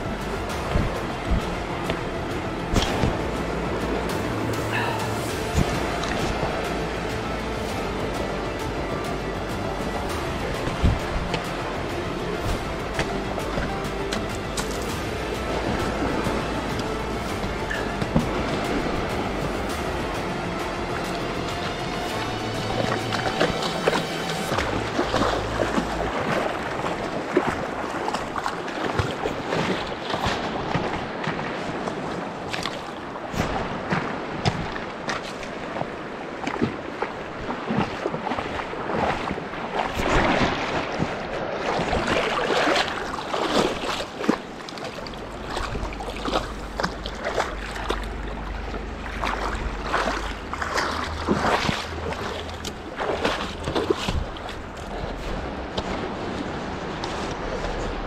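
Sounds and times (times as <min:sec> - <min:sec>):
low rumble: 0:00.0 - 0:27.2, 0:44.6 - 0:58.0
river water rushing over rocks: 0:00.0 - 0:58.0.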